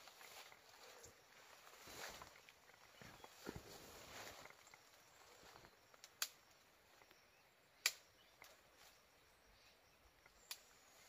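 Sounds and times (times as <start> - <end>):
twigs snapping: 6.0 - 6.4, 7.8 - 8.6.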